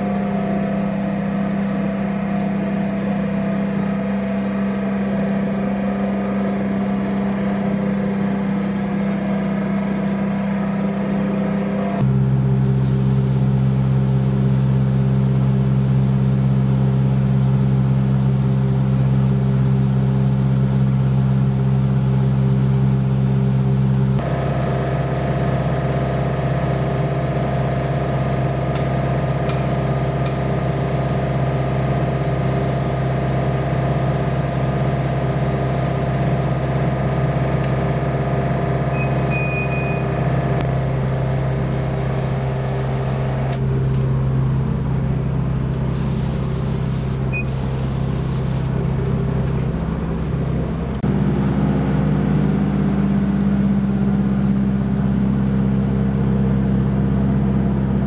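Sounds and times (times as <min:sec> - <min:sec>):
steady machine hum: 0:00.0 - 0:58.0
spray gun hissing: 0:12.7 - 0:16.6, 0:19.4 - 0:36.9, 0:40.6 - 0:43.8, 0:45.8 - 0:50.8.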